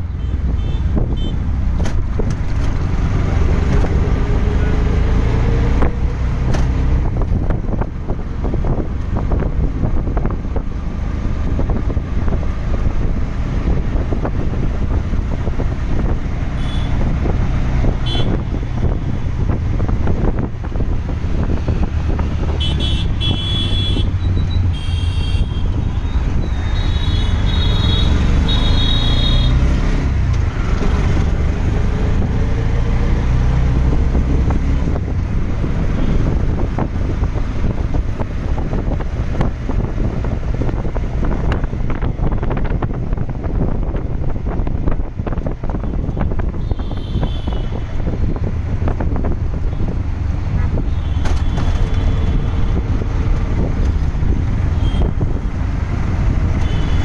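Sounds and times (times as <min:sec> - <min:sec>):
engine and road rumble: 0:00.0 - 0:57.0
vehicle horns tooting: 0:00.2 - 0:01.4, 0:16.6 - 0:17.0, 0:18.0 - 0:18.5, 0:22.6 - 0:29.6, 0:46.5 - 0:47.8, 0:54.8 - 0:55.2, 0:56.6 - 0:57.0
wind on microphone: 0:00.4 - 0:24.8, 0:29.8 - 0:57.0.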